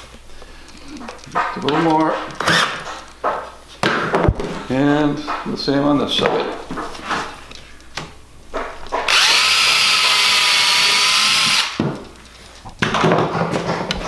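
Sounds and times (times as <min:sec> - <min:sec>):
cordless drill motor: 0:02.4 - 0:02.8, 0:09.1 - 0:11.8.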